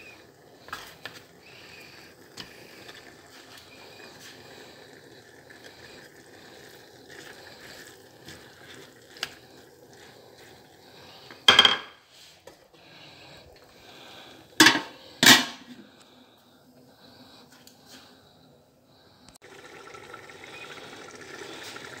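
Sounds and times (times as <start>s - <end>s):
pot lid clanking on pot rim: 14.6s - 15.6s
metal cookware clang: 14.6s - 15.7s.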